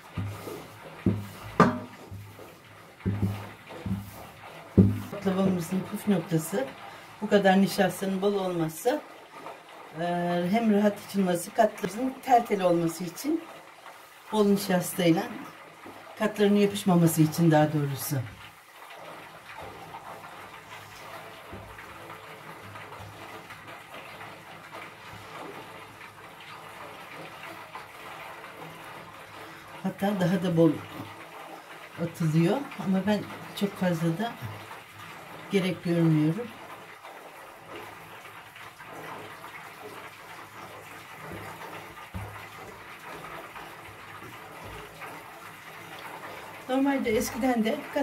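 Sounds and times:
hands patting dough: 0.0 - 2.4, 3.1 - 4.2, 4.8 - 5.7.

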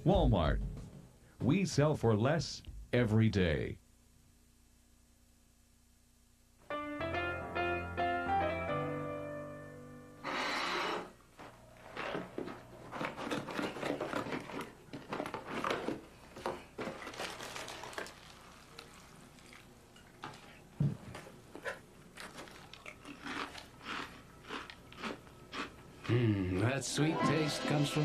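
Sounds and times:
plastic bag crinkling: 12.9 - 19.7, 22.1 - 23.7.

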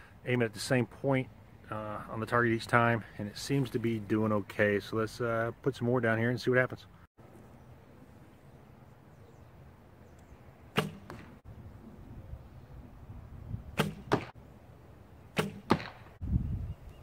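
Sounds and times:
arrow striking target: 10.7 - 11.4, 13.7 - 14.4, 15.3 - 16.2.

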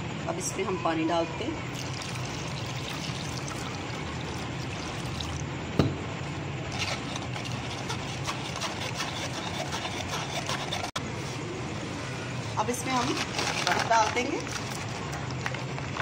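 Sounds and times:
steady low hum: 0.0 - 13.4
water draining: 1.7 - 5.4
knock: 5.8 - 6.0.

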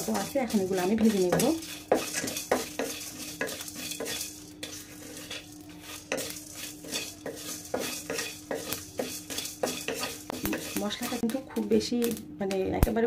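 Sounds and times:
spatula scraping spices in metal pan: 0.0 - 11.4
seeds skittering on metal: 0.0 - 12.2.

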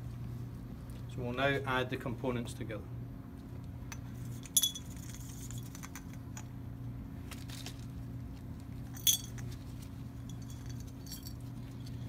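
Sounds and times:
steady low hum: 0.0 - 12.0
glass clink: 4.5 - 5.0, 9.0 - 9.4
rock pieces rattling against glass: 9.0 - 9.5.

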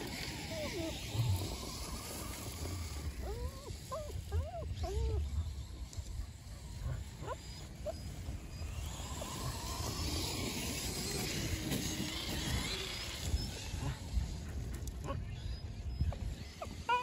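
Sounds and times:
rc truck motor and tyres rushing: 0.0 - 17.0
wind on microphone: 11.1 - 17.0.

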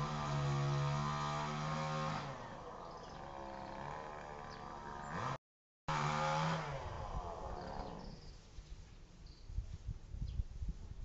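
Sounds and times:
chainsaw engine revving: 0.0 - 8.2.

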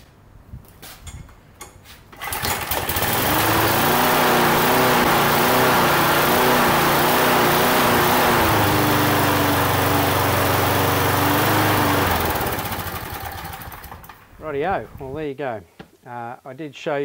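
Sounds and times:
lawn mower engine running: 2.2 - 14.4.

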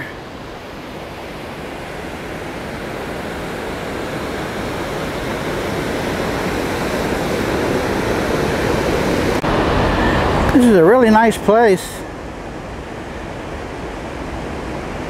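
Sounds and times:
water rushing over rocks: 0.0 - 11.9.

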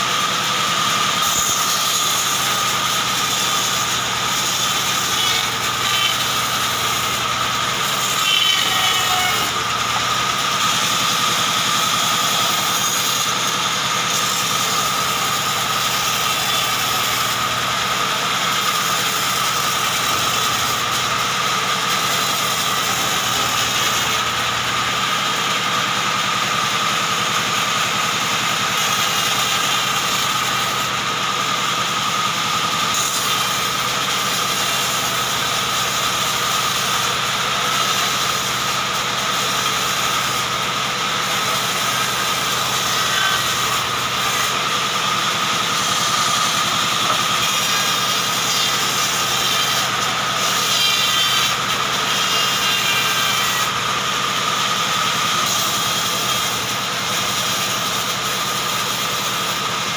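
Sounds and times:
band saw running: 0.0 - 59.9.

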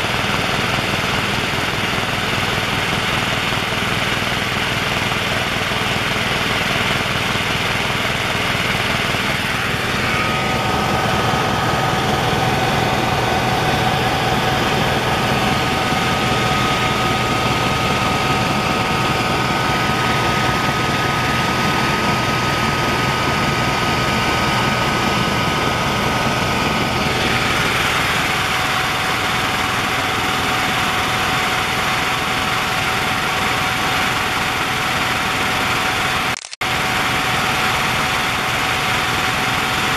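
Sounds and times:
helicopter engines and rotors droning: 0.0 - 39.9
high-pitched whine: 8.7 - 39.9.

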